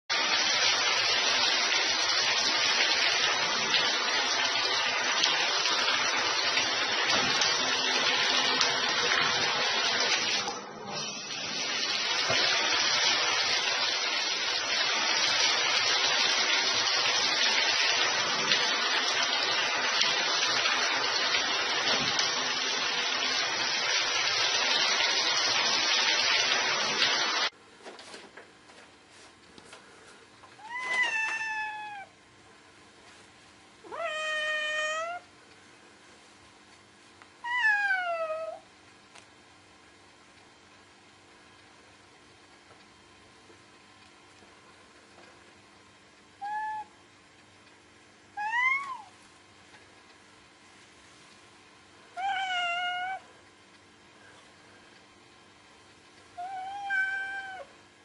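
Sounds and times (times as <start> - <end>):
tap water running into bathtub: 0.1 - 27.6, 30.5 - 32.1.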